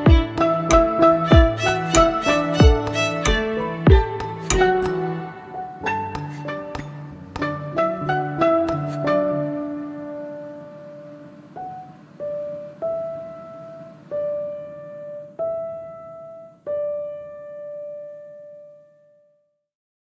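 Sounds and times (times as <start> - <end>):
slow piano melody: 0.0 - 19.5.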